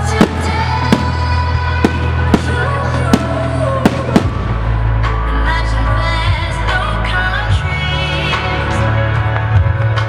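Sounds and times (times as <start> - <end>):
loud music: 0.0 - 10.0.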